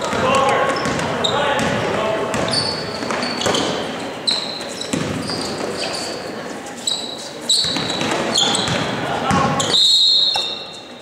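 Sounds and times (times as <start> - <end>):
basketball bouncing: 0.0 - 5.4, 7.6 - 9.7
crowd chatter: 0.0 - 11.0
sneakers squeaking on court: 0.0 - 11.0.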